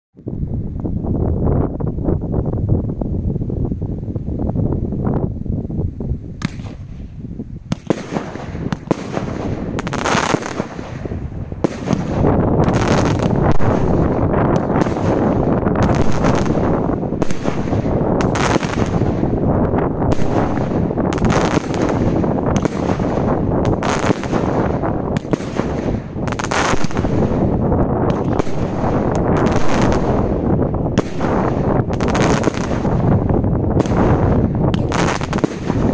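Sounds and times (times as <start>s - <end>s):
rapid firework pops: 6.4s - 7.0s, 7.7s - 33.2s, 33.8s - 35.9s
firework bangs: 6.4s - 35.9s.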